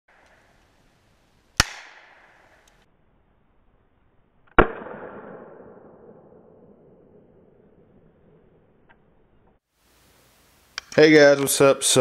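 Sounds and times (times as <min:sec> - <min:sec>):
pistol shots echoing: 0:01.6 - 0:02.8, 0:04.5 - 0:07.5.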